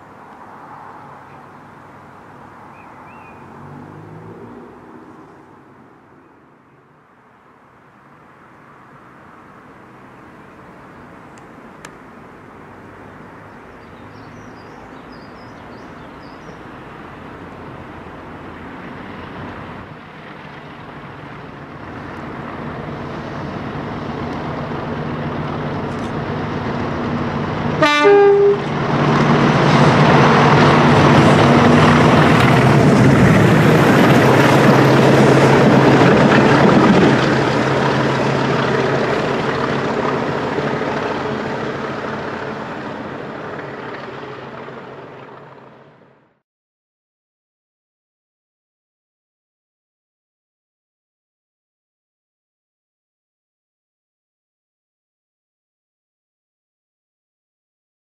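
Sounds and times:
diesel locomotives passing: 0:00.0 - 0:46.4
locomotive horn: 0:27.7 - 0:28.8.

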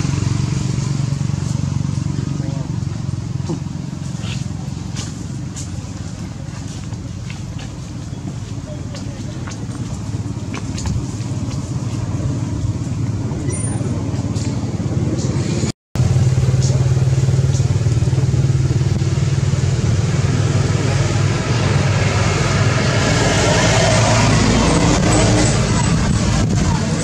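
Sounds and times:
rushing traffic noise: 0:00.0 - 0:27.0
vehicle engine humming: 0:00.0 - 0:27.0.

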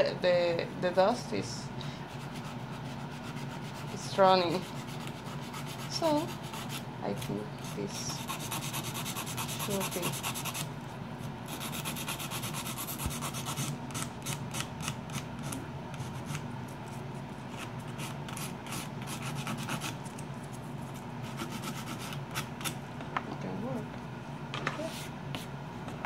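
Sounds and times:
dust collector fan humming: 0:00.0 - 0:26.0
nail file rasping on fingernail: 0:04.5 - 0:06.8, 0:07.7 - 0:10.7, 0:11.5 - 0:16.4, 0:17.6 - 0:20.0, 0:21.2 - 0:22.8.

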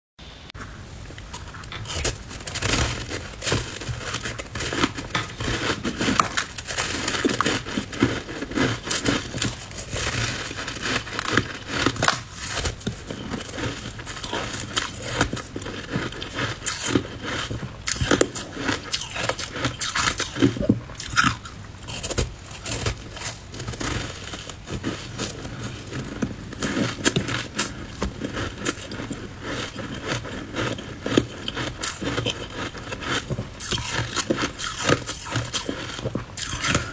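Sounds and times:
ice crunching between teeth: 0:01.2 - 0:36.9.

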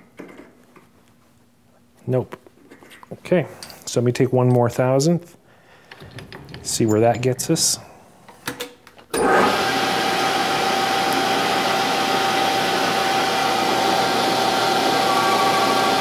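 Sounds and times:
lathe running with a whine: 0:09.2 - 0:16.0.

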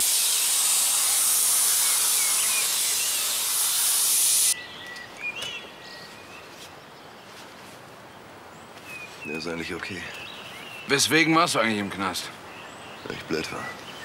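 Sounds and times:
loud steady hiss: 0:00.0 - 0:04.6
bird chirps: 0:01.8 - 0:03.3, 0:08.8 - 0:11.2.

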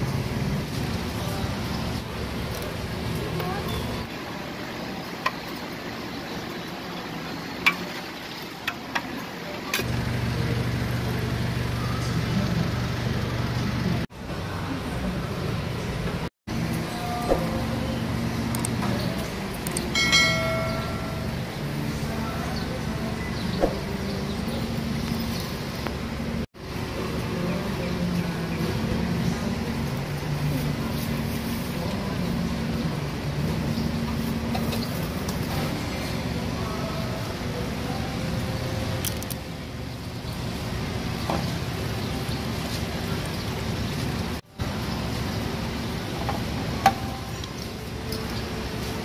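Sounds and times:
outdoor market ambience: 0:00.0 - 0:49.0
traffic: 0:00.0 - 0:49.0
low motor hum: 0:09.8 - 0:26.4.

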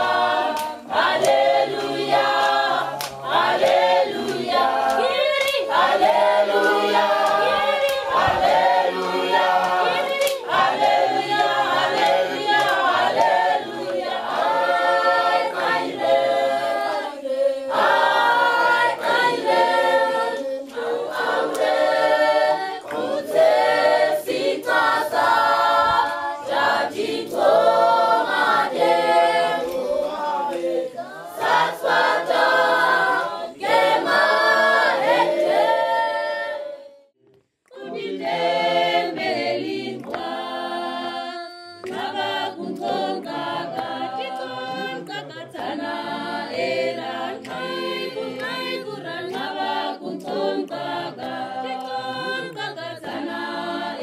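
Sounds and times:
children and adults singing in chorus: 0:00.0 - 0:37.1, 0:37.7 - 0:54.0.

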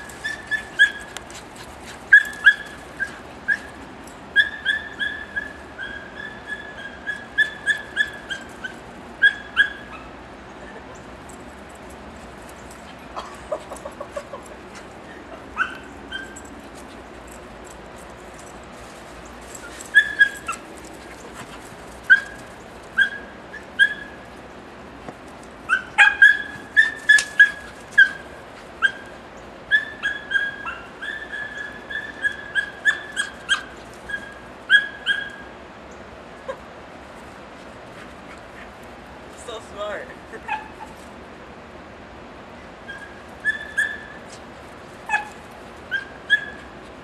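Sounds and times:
dog yelping: 0:00.0 - 0:01.2, 0:02.1 - 0:10.8, 0:13.3 - 0:16.6, 0:19.5 - 0:24.3, 0:25.7 - 0:35.5, 0:40.4 - 0:41.0, 0:42.8 - 0:44.4, 0:45.0 - 0:46.8.

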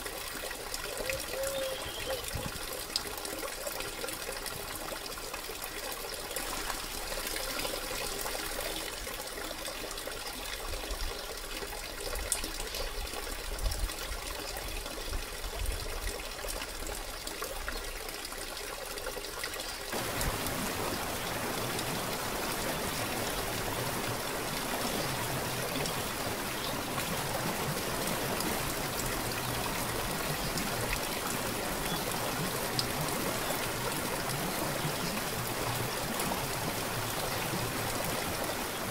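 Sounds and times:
mountain stream rushing: 0:00.0 - 0:10.1, 0:19.7 - 0:38.9
small waterfall spilling into pool: 0:00.0 - 0:38.9.

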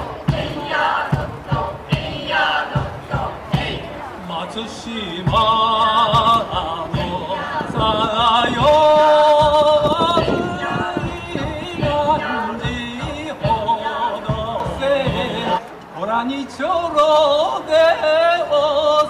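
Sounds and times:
drum hits: 0:00.0 - 0:04.1, 0:05.2 - 0:15.6.

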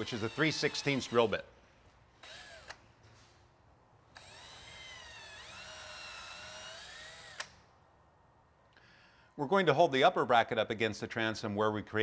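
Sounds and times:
cordless drill motor whine: 0:00.0 - 0:01.4, 0:02.2 - 0:02.8, 0:04.1 - 0:07.5
drill click: 0:00.0 - 0:01.4, 0:02.2 - 0:02.9, 0:04.1 - 0:07.6.

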